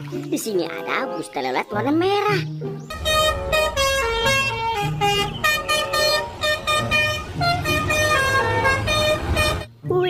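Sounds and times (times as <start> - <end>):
low rumble: 2.9 - 7.4
musical air horn playing a tune: 2.9 - 9.7.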